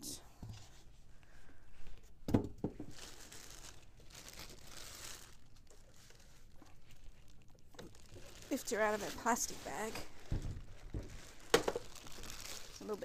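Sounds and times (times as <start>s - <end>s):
plastic bag crinkling: 2.8s - 13.0s.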